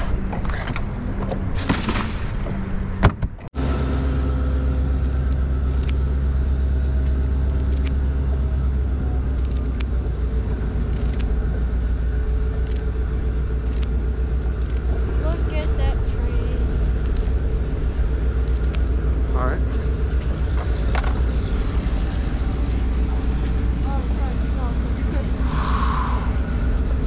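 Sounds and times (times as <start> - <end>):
motor idling hum: 3.6 - 25.4
scissors snipping clicks: 5.0 - 6.0, 7.4 - 8.0, 9.3 - 9.9, 10.9 - 11.3, 13.6 - 14.9, 18.4 - 18.8.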